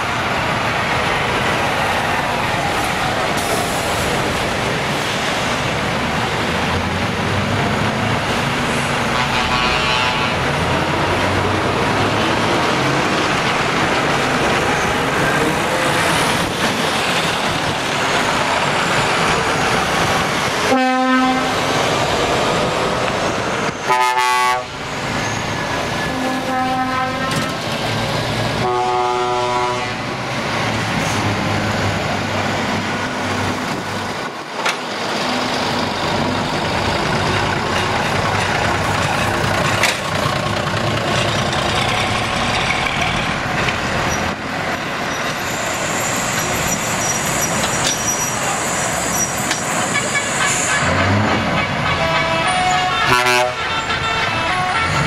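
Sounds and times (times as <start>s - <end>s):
truck diesel engines: 0.0s - 55.0s
truck air horn blasts: 9.1s - 10.4s, 20.7s - 21.6s, 23.8s - 24.7s, 26.0s - 27.6s, 28.6s - 30.1s, 51.6s - 55.0s.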